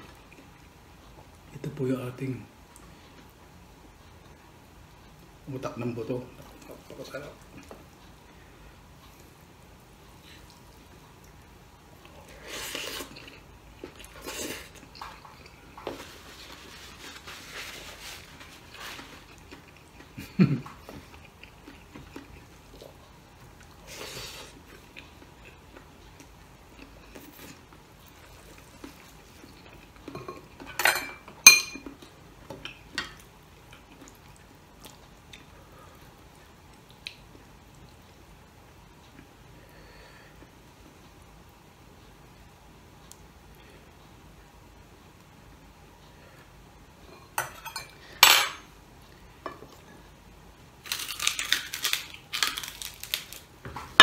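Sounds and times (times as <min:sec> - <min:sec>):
person eating with hands: 0:10.1 - 0:30.8, 0:31.8 - 0:38.1, 0:50.6 - 0:53.6.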